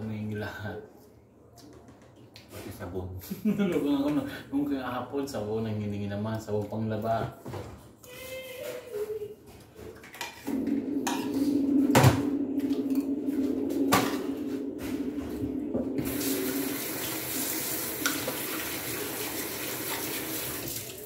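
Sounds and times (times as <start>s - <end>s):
low hum: 10.5s - 19.7s
water running from tap: 15.9s - 21.0s.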